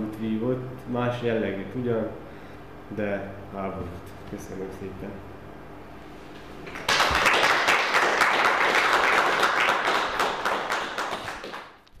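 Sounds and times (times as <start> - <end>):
audience applauding: 6.7 - 11.8.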